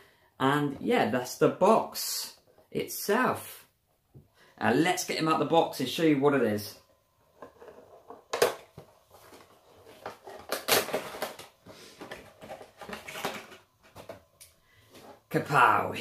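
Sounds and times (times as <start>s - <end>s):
cardboard and plastic crinkling: 7.4s - 14.3s.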